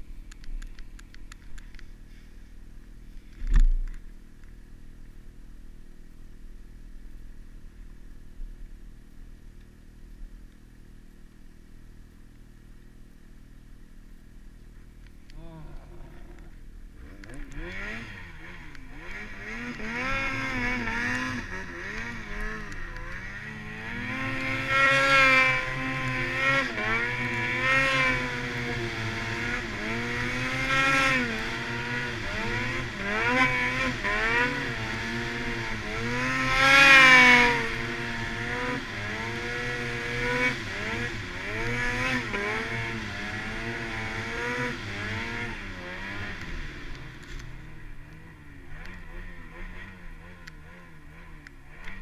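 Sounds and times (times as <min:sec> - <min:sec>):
snowmobile engine revving: 0:15.4 - 0:52.0.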